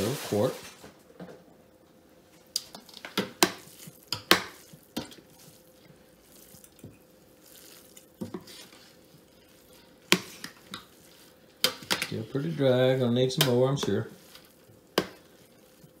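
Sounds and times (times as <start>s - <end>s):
spoon stirring in a pot: 2.5s - 16.0s.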